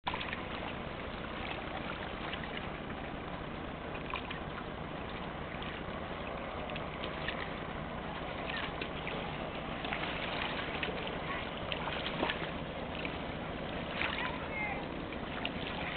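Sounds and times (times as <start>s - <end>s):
small waves lapping on rocks: 0.1s - 15.9s.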